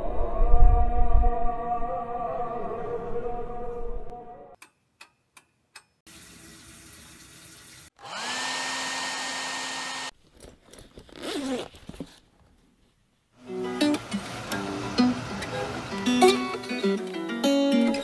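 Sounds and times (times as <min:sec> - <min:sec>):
hair dryer blowing: 0:08.0 - 0:10.1.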